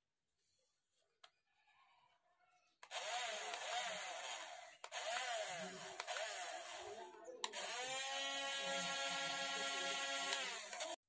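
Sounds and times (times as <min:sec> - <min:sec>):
small electric motors whining: 0:02.8 - 0:11.0.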